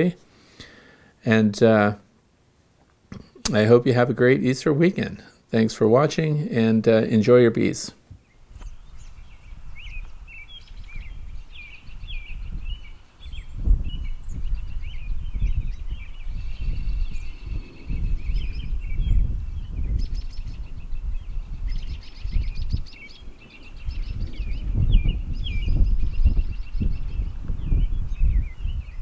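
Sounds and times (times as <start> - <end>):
songbirds chirping and trilling: 2.9 - 29.0
wind buffeting microphone: 8.1 - 29.0.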